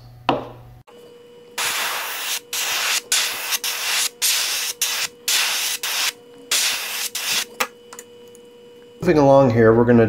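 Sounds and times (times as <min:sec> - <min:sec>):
airbrush hissing in bursts: 0:01.6 - 0:07.6.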